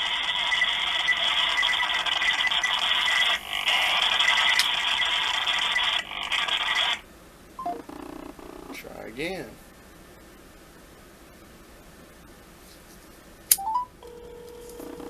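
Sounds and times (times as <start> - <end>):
hissing static from phone speaker: 0.0 - 9.7, 14.0 - 15.0.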